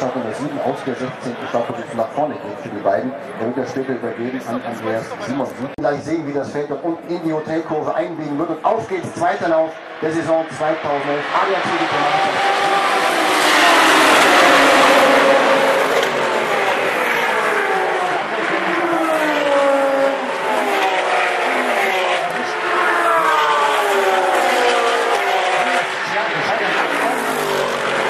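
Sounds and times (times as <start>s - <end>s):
race cars accelerating in a pack: 0.0s - 28.0s
single race cars passing: 7.1s - 28.0s.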